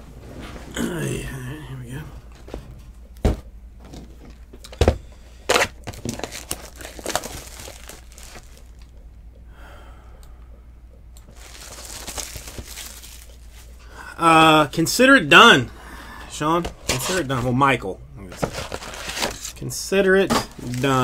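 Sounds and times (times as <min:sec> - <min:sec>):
crinkling and tearing of wrapping: 0:05.5 - 0:08.9, 0:11.3 - 0:13.8, 0:18.3 - 0:19.6, 0:20.4 - 0:21.0.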